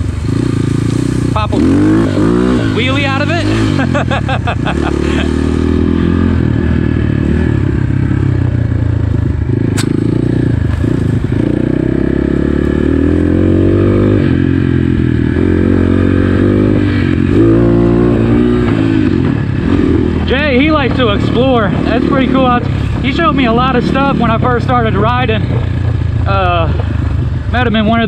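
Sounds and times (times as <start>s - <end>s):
dirt bike engine running: 0.0s - 28.0s
sharp tick: 9.7s - 10.0s.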